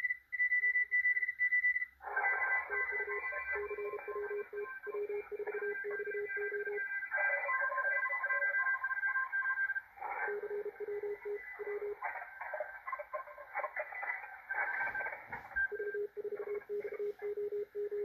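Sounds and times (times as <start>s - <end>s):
morse code beeps: 0.0s - 13.5s, 14.6s - 18.0s
radio band hiss: 9.9s - 17.4s.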